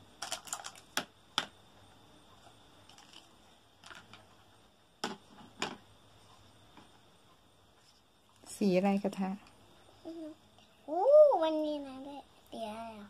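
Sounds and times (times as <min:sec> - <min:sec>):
plastic toy pieces clicking and knocking: 0:00.2 - 0:01.5.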